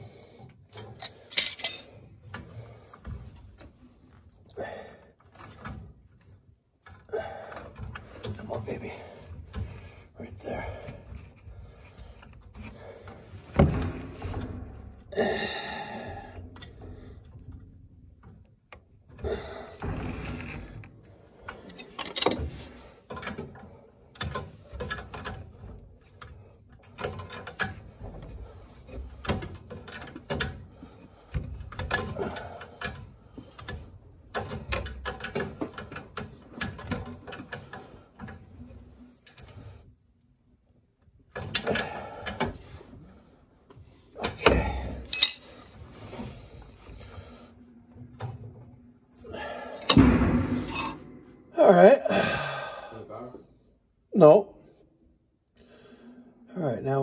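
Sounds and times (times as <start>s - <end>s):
metal parts clicking and knocking: 0.7s - 2.5s, 21.4s - 28.3s, 28.9s - 38.4s, 44.2s - 45.7s, 49.8s - 51.1s.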